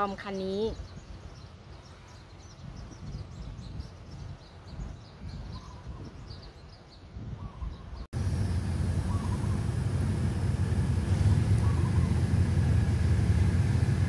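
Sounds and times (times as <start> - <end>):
small birds chirping: 0.0 - 8.1, 9.0 - 14.0
loud steady low rumble: 8.1 - 14.0
low outdoor rumble: 8.2 - 14.0.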